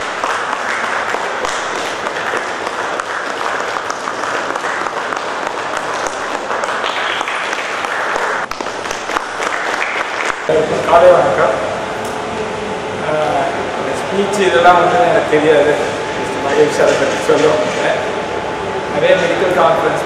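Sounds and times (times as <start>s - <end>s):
people clapping: 0.0s - 11.2s.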